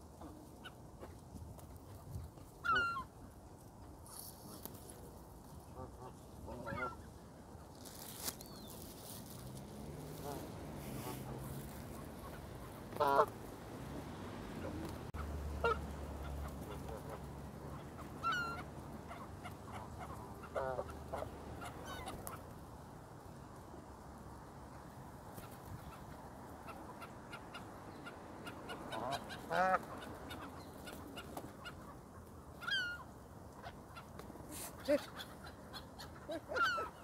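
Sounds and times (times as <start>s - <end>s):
geese honking: 2.6s - 3.1s, 5.7s - 7.1s, 9.8s - 13.5s, 14.4s - 22.4s, 26.7s - 32.0s, 32.6s - 37.0s.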